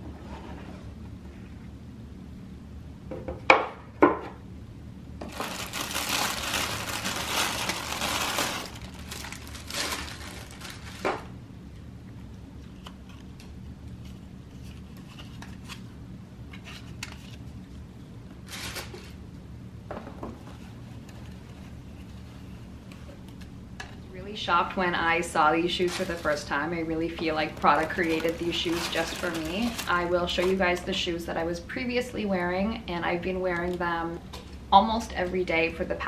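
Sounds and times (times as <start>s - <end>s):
fabric bags rustling: 5.2s - 11.3s, 25.6s - 30.9s
tissue paper crinkling: 5.2s - 11.3s, 18.4s - 19.2s, 25.6s - 30.9s.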